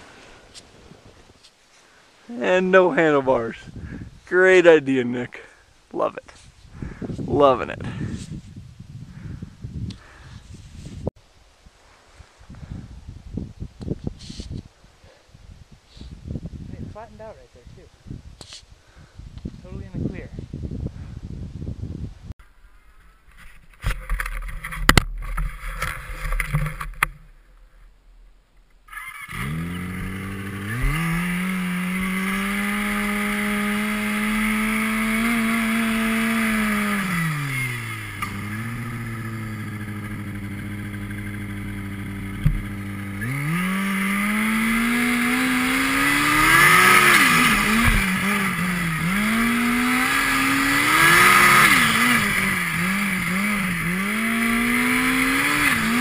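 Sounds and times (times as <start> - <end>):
snowmobile engine revving: 28.9 - 56.0.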